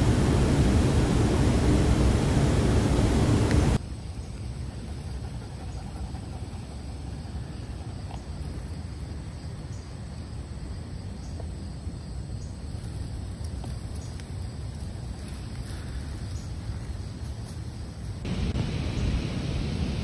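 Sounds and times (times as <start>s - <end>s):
steady low rumble: 0.0s - 3.8s, 18.1s - 20.0s
faint scattered ticks: 12.4s - 18.2s.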